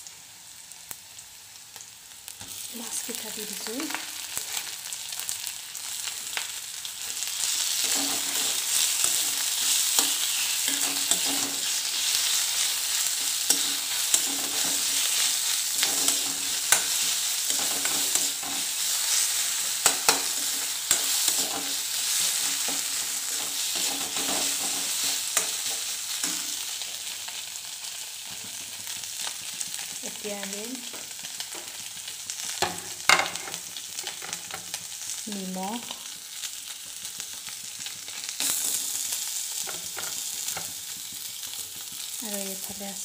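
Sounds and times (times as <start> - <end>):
food sizzling in hot oil: 0.0 - 43.0
steel spoon scraping pan: 7.6 - 26.6.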